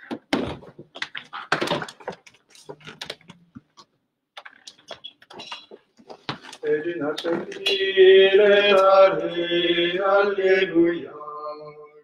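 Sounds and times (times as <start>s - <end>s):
footsteps and shuffling: 0.0s - 7.8s.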